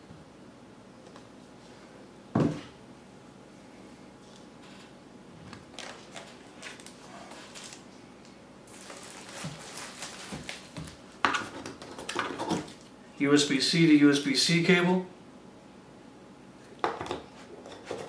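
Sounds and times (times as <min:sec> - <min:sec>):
packaging crinkling and rustling: 0:05.5 - 0:12.8.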